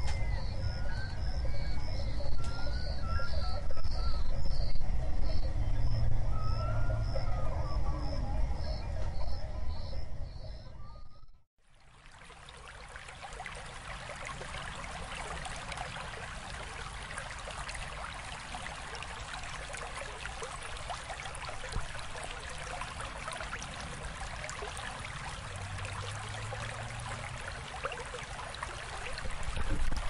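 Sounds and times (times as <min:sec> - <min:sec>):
stream water babbling: 0:11.6 - 0:30.0.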